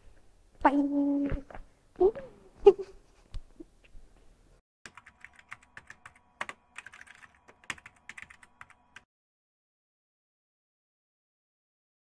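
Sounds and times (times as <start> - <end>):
computer keyboard typing: 4.9 - 9.1.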